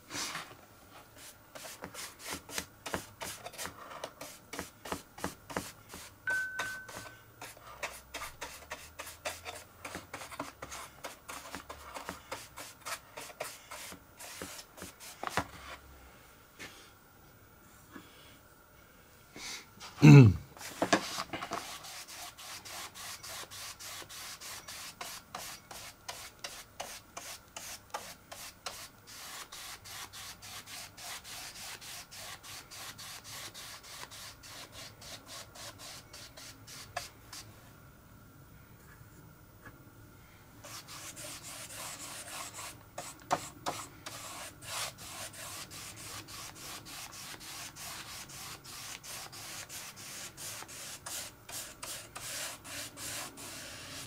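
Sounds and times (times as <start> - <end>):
paintbrush strokes: 5.5 - 15.8, 20.6 - 37.5, 40.6 - 54.0.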